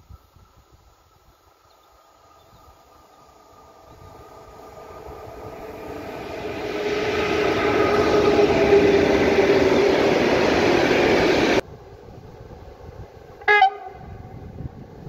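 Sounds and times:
electric locomotive rumbling and humming: 0.0 - 15.0.

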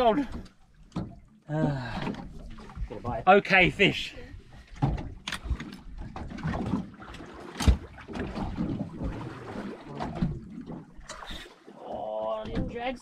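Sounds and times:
water noise: 0.0 - 13.0
wind: 0.0 - 13.0
knocks aboard boat: 7.5 - 9.3, 9.9 - 10.8, 12.4 - 13.0.

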